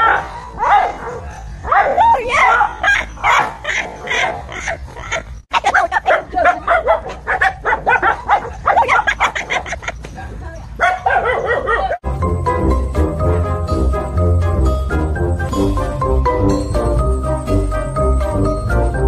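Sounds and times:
dogs barking: 0.0 - 12.0.

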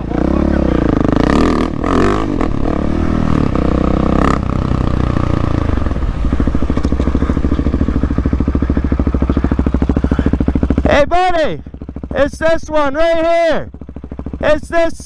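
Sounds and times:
motorcycle engine idling: 0.0 - 15.0.

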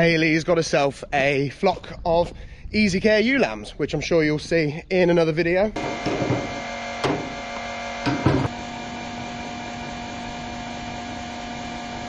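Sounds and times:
fuel pump humming: 5.8 - 12.0.

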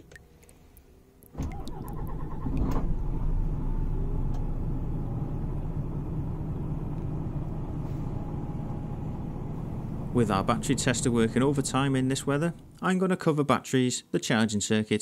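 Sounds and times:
diesel engine cranking: 1.3 - 12.8
diesel engine idling: 1.6 - 12.8.

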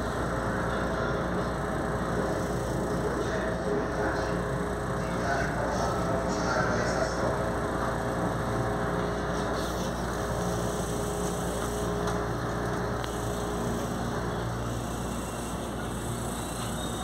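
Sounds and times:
train mechanical hum: 0.0 - 17.0.

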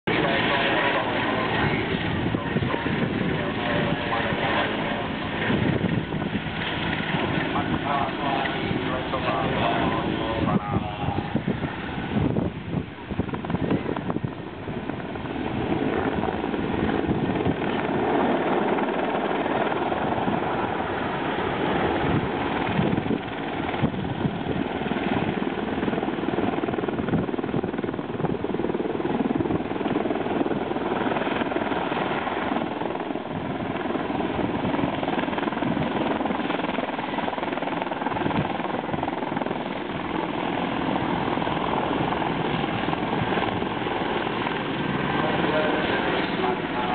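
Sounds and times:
helicopter rotor blades beating: 0.1 - 46.9
turbine engines rushing: 42.6 - 46.9.

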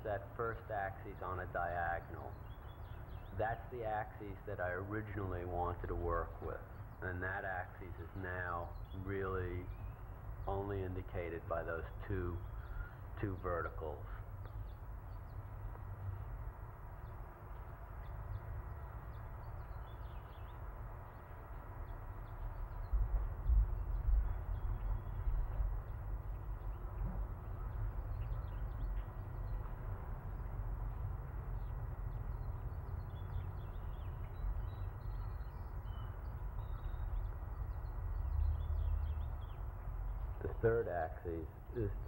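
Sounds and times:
birds chirping: 0.0 - 42.0
low rumble on microphone: 13.5 - 42.0.

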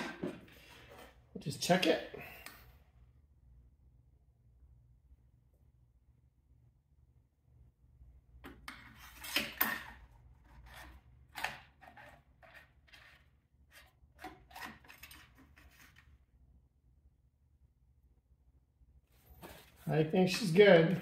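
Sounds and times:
dipstick rubbing and scraping: 10.3 - 16.1.

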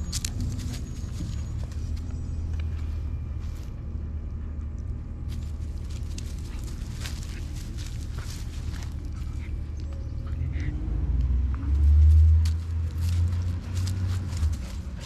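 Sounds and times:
puppies rustling through dry leaves: 0.0 - 2.3, 5.3 - 10.2, 11.7 - 15.0
steady low rumble: 0.0 - 15.0.

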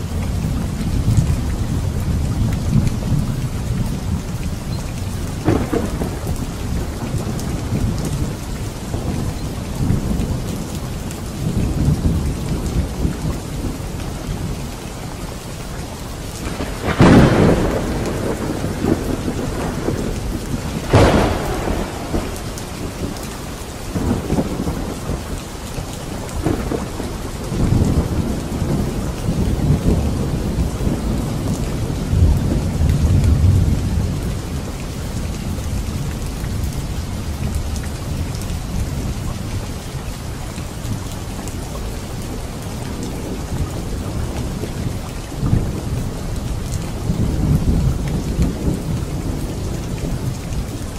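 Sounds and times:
steady rain: 0.0 - 50.9
thunder rumbling: 0.0 - 50.9
thunder crack: 5.4 - 9.2, 16.4 - 25.2.

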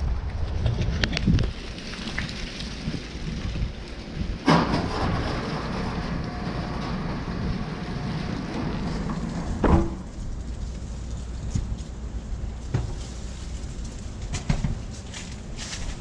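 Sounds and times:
wind buffeting microphone: 0.0 - 13.0
loud thump: 9.6 - 10.1.

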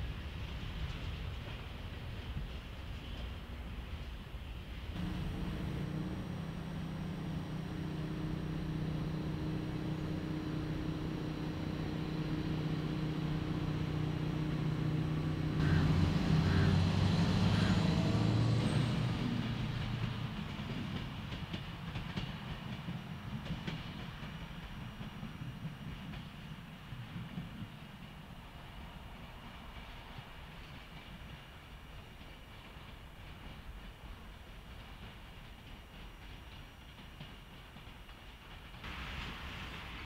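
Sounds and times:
diesel locomotive engine running: 4.9 - 30.6.

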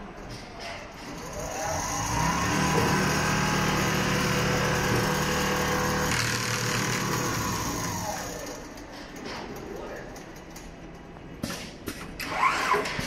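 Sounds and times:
sewing machine whirring: 1.0 - 9.2.

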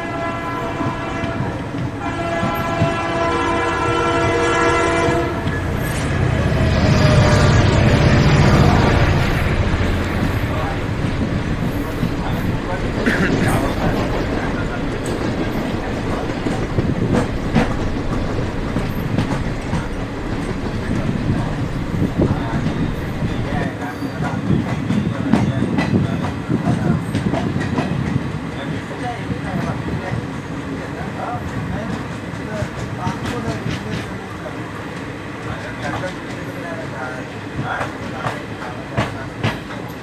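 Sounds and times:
train horn blast: 0.0 - 9.7
moving train rumble: 0.0 - 40.0
wheels clacking over rail joints: 0.4 - 40.0.

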